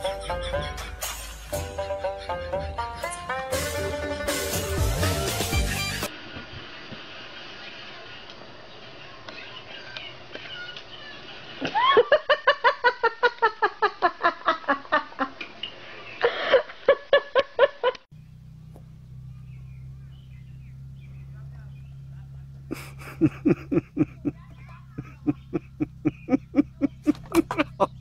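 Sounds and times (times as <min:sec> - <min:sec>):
person laughing hard: 0:00.0 - 0:04.8, 0:11.7 - 0:15.2, 0:22.7 - 0:24.4, 0:25.0 - 0:28.0
low hum: 0:18.2 - 0:28.0.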